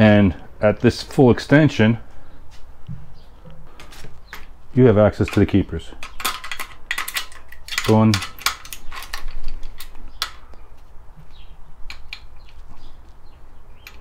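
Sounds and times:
small steel parts clicking: 0:05.2 - 0:10.5.

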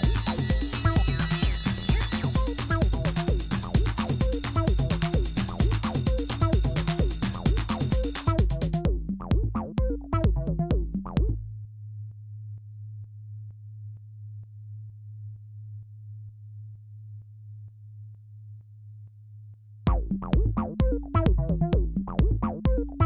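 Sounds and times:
fast pattern of synth hits: 0:00.0 - 0:11.4, 0:19.9 - 0:23.0
low bass drone: 0:00.0 - 0:11.7.

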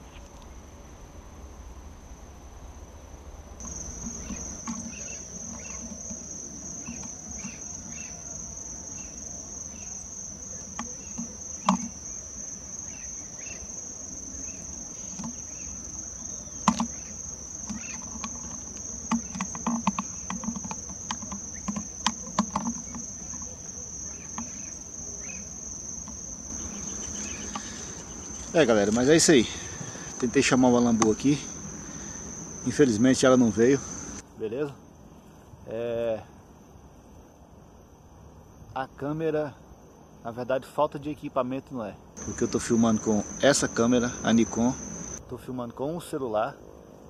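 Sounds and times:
sharp clicks and knocks: 0:03.6 - 0:07.7, 0:09.1 - 0:12.2, 0:14.5 - 0:29.1
high-pitched insect drone: 0:03.6 - 0:34.2, 0:42.2 - 0:45.2.

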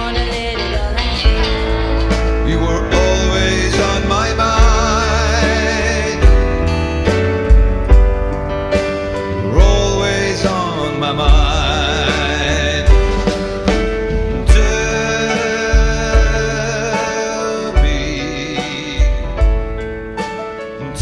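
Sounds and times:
country band music: 0:00.0 - 0:21.0.

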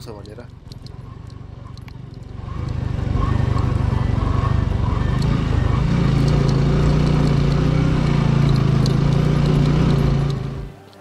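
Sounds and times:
faint ticks: 0:00.0 - 0:02.8
motorcycle engine running: 0:00.0 - 0:10.9.

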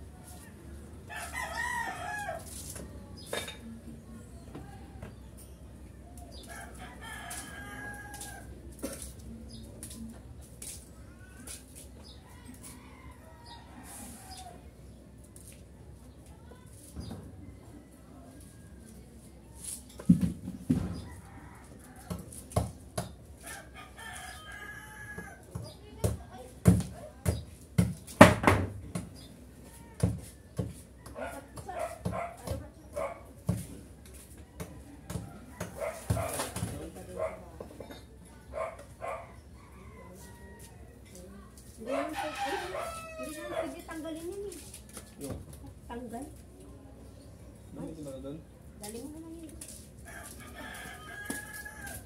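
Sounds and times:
rooster crowing: 0:01.1 - 0:02.5, 0:06.5 - 0:08.5, 0:39.6 - 0:41.0, 0:41.8 - 0:43.8, 0:50.1 - 0:52.0.

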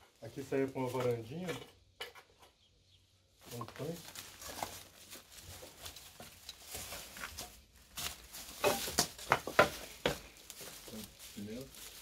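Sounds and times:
footsteps through dry grass and leaves: 0:03.4 - 0:12.0.

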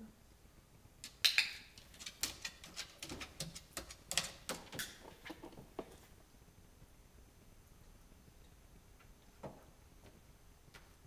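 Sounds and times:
chicken claws tapping on wood: 0:01.0 - 0:06.0.

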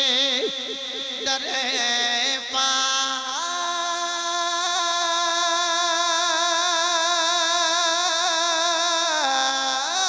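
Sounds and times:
man singing a held note: 0:00.0 - 0:07.2.

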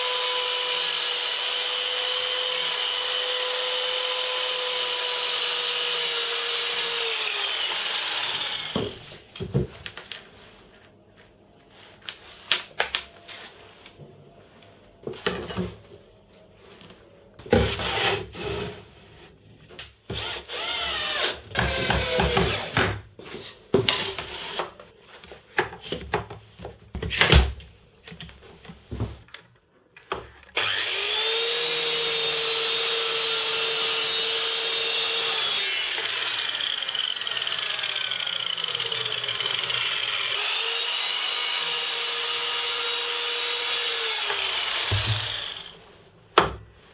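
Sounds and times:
mitre saw motor whining: 0:00.0 - 0:09.0, 0:30.6 - 0:45.8
wood and tools knocking: 0:44.8 - 0:45.6.

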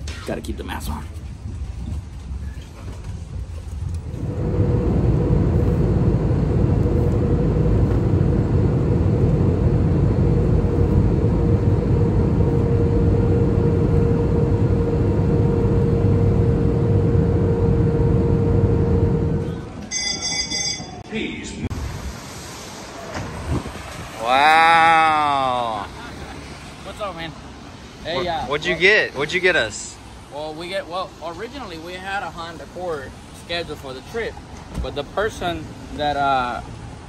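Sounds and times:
constant hum: 0:00.0 - 0:21.7
vehicle interior rumble: 0:02.6 - 0:20.0.

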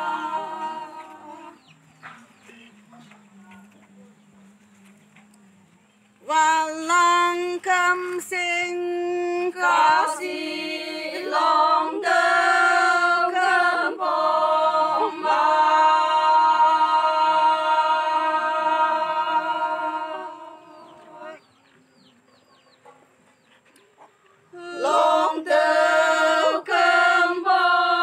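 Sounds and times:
women singing unaccompanied: 0:00.0 - 0:02.0, 0:06.2 - 0:21.6, 0:24.5 - 0:28.0.

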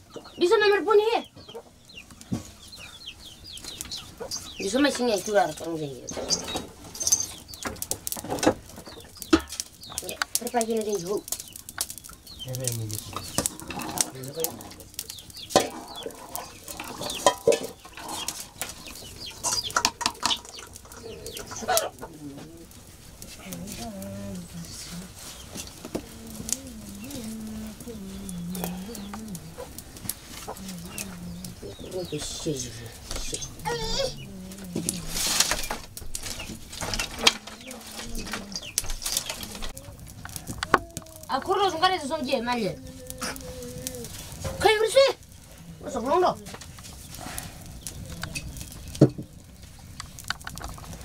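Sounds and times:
wood fire crackling: 0:00.0 - 0:51.0
fire snaps and pops: 0:01.8 - 0:51.0
metal cookware clanking: 0:15.5 - 0:18.5.

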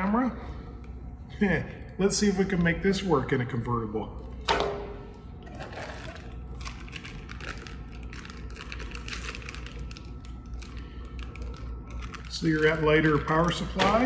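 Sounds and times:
low steady hum: 0:00.0 - 0:14.0
plastic packaging crinkling: 0:05.4 - 0:14.0.

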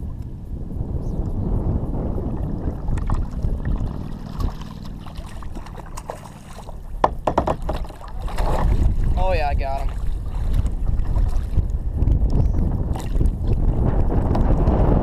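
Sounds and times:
wind on microphone: 0:00.0 - 0:15.0
water sloshing around kayak: 0:01.9 - 0:14.0.

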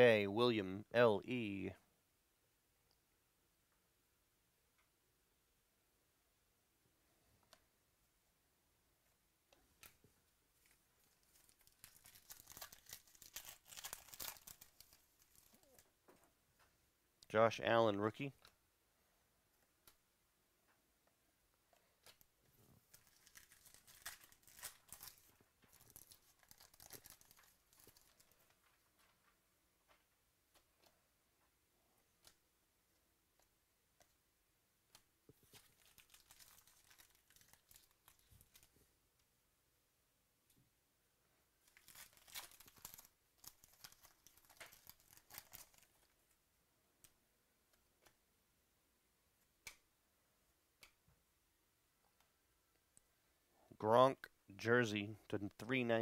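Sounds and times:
foil wrapper crinkling: 0:11.0 - 0:15.8, 0:22.8 - 0:29.2, 0:35.4 - 0:38.7, 0:41.6 - 0:46.2.

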